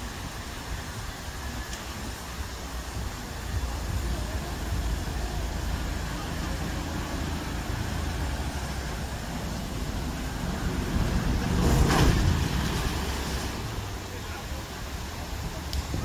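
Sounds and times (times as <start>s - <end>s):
distant vehicle engine rumble: 3.5s - 16.0s.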